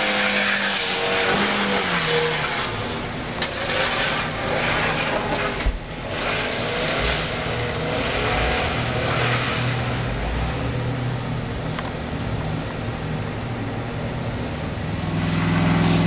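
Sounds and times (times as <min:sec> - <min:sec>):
wheels spinning in snow: 0:00.0 - 0:10.5
car engines revving: 0:00.0 - 0:16.0.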